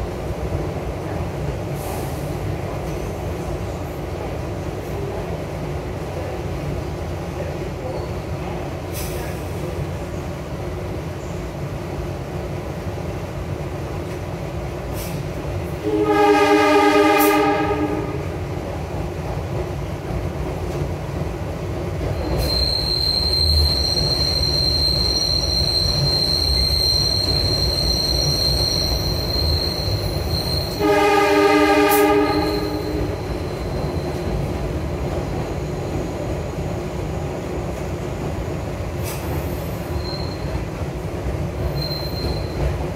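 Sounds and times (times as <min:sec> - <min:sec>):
subway train rumbling in tunnel: 0:00.0 - 0:42.9
train horn blasts: 0:15.8 - 0:18.4, 0:30.7 - 0:33.2
high metallic squeal: 0:22.2 - 0:30.9, 0:32.2 - 0:34.2, 0:40.0 - 0:40.5, 0:41.7 - 0:42.6.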